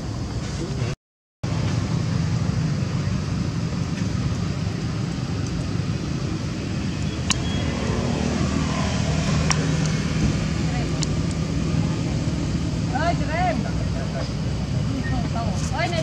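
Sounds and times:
low rumble of motor traffic: 0:00.0 - 0:16.0.

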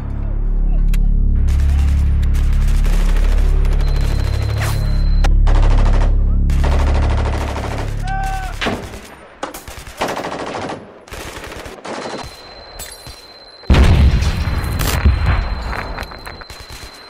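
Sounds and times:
low rumble: 0:00.0 - 0:10.7
machine-gun fire bursts: 0:01.4 - 0:04.7, 0:05.4 - 0:12.6
whistling tone: 0:03.8 - 0:05.3, 0:15.3 - 0:17.0
heavy boom: 0:13.7 - 0:16.0.

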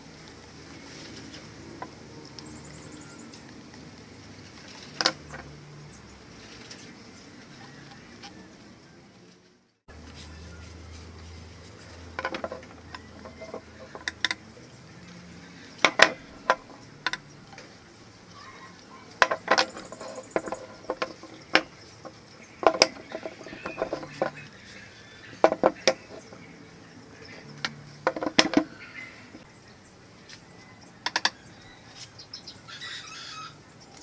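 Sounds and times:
plastic pipes knocking together: 0:12.2 - 0:14.4, 0:15.8 - 0:17.2, 0:19.2 - 0:21.7, 0:22.6 - 0:24.4, 0:25.4 - 0:26.4, 0:27.6 - 0:28.7.

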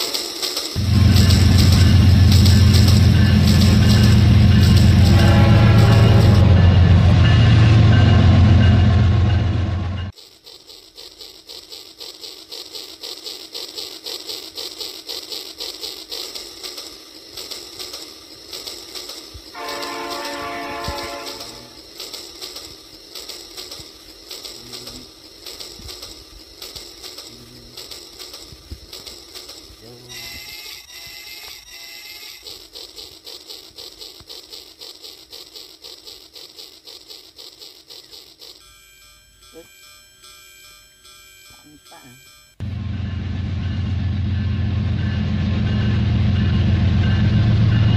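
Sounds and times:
toy train chugging: 0:00.0 - 0:47.9
toy train horn blast: 0:00.8 - 0:07.1, 0:19.5 - 0:21.9, 0:29.8 - 0:32.5, 0:41.4 - 0:42.4.

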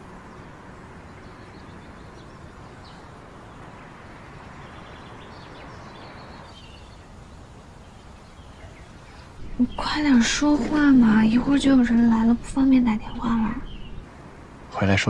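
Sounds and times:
outdoor background noise: 0:00.0 - 0:15.0
faint bird chirps: 0:04.4 - 0:14.1.

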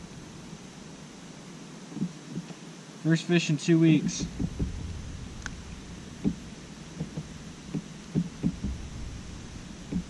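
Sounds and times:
low rumble: 0:04.2 - 0:10.0.

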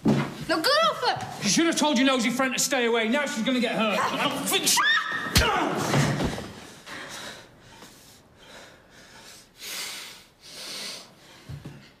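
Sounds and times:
man breathing hard: 0:06.6 - 0:12.0.

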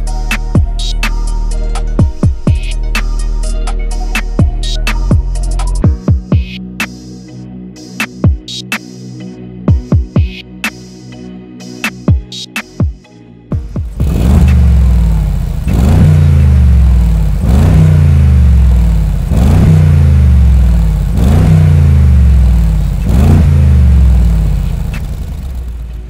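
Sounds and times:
car engine free-revving: 0:13.5 - 0:26.0.

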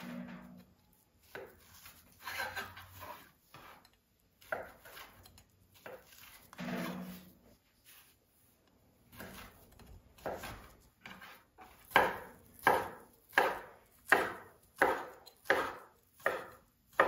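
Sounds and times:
knife chopping on cutting board: 0:01.2 - 0:07.3, 0:09.1 - 0:17.0.

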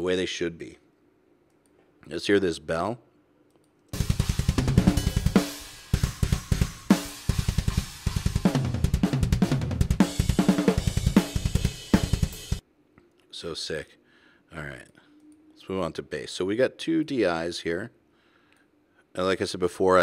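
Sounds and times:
snare drum hits: 0:04.0 - 0:12.2
rapid bass drum strokes: 0:04.0 - 0:12.6.

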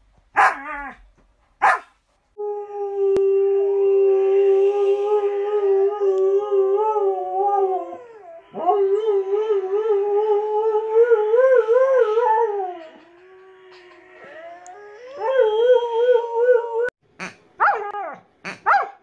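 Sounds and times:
dog howling: 0:05.6 - 0:16.9.

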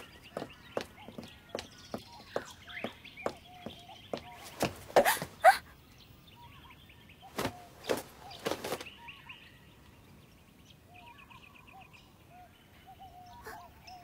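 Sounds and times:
person stumbling: 0:00.0 - 0:05.6, 0:07.4 - 0:08.8
birds chirping: 0:00.0 - 0:14.0.

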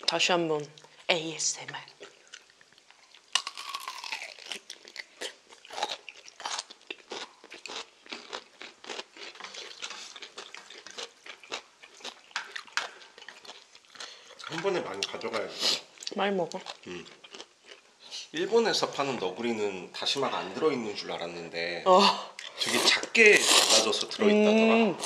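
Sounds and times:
crunchy chewing of radish kimchi: 0:01.9 - 0:18.3, 0:22.4 - 0:24.1.

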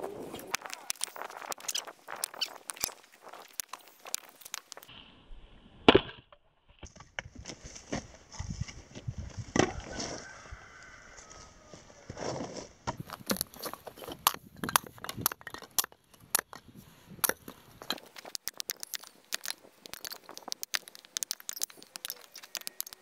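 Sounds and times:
split sticks clattering: 0:00.4 - 0:04.9, 0:12.9 - 0:23.0.

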